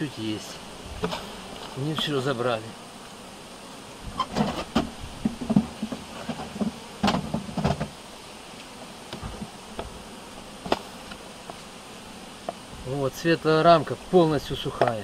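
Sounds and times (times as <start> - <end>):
honeybees buzzing: 0.0 - 15.0
wooden hive frames knocking: 1.0 - 2.3, 4.1 - 8.0, 8.8 - 11.7, 12.4 - 12.9, 14.4 - 15.0.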